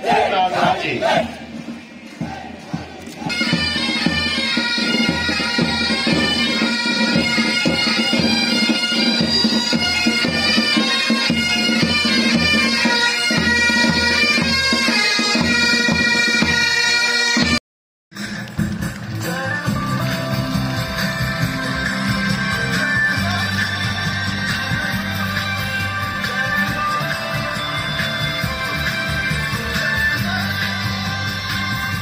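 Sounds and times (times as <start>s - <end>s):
bagpipes playing a march: 3.2s - 17.6s, 20.7s - 31.8s.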